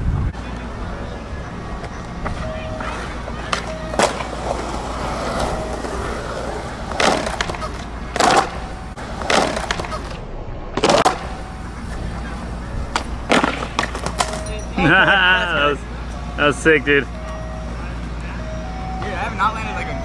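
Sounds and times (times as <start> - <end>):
skateboard wheels rolling on concrete: 0.0 - 14.7
skateboard clacks: 1.8 - 10.2, 10.8 - 14.5.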